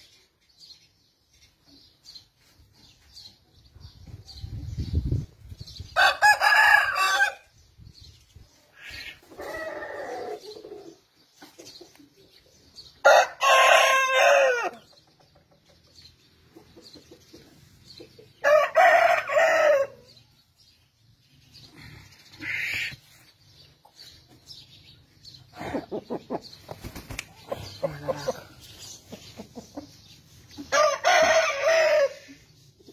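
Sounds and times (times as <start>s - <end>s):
rooster crowing: 6.0s - 7.4s.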